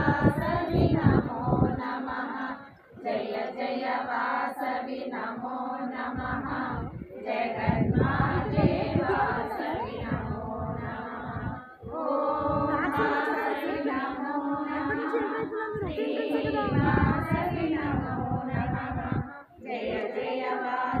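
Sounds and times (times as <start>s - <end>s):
group singing devotional song: 0.0s - 21.0s.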